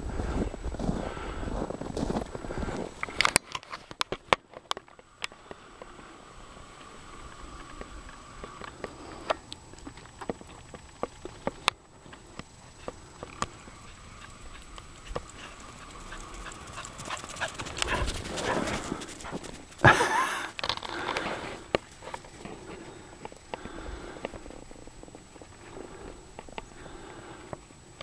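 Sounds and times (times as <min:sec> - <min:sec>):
footsteps crunching on snow: 0:00.0 - 0:04.2, 0:12.8 - 0:20.2.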